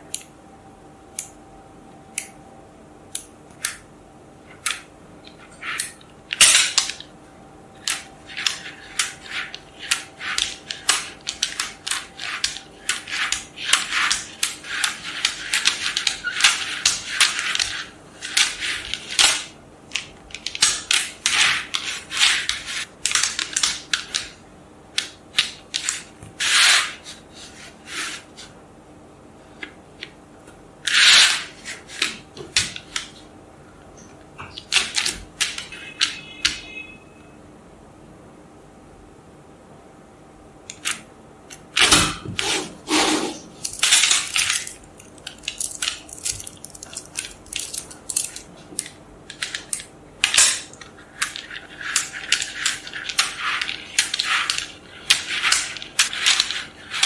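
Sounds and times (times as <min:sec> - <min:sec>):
magnetic balls clicking together: 0:07.8 - 0:24.4.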